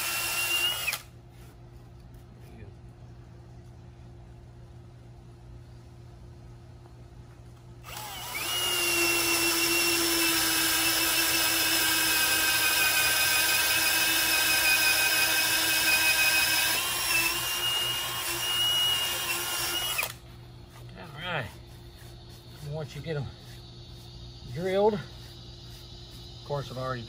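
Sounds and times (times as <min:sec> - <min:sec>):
cordless drill boring into wood: 0:00.0 - 0:01.1, 0:07.9 - 0:20.2.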